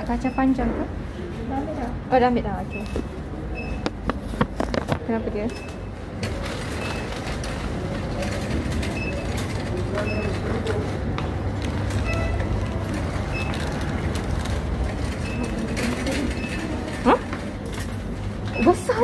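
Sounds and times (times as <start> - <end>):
shopping trolley rattling on tiles: 4.2 - 19.0.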